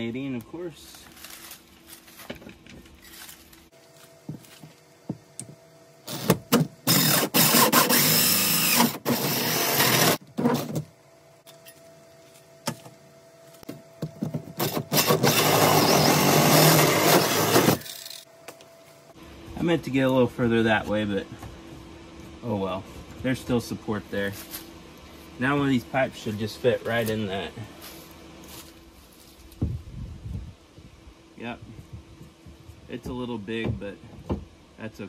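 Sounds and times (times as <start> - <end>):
power drill cutting through siding: 6.1 - 10.2, 14.6 - 18.0.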